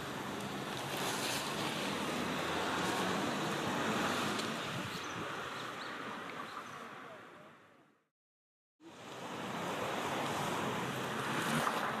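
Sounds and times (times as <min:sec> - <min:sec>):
river water flowing over stones: 0:00.0 - 0:05.5.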